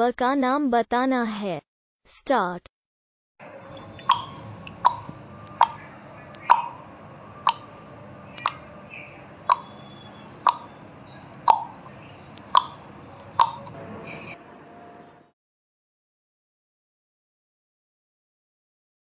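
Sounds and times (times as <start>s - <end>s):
clock-like ticks: 6.4s - 6.8s, 9.5s - 9.7s.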